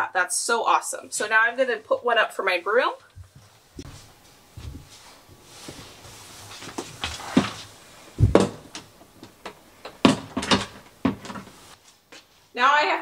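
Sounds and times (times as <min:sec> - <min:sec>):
dull thump: 0:08.2 - 0:08.7.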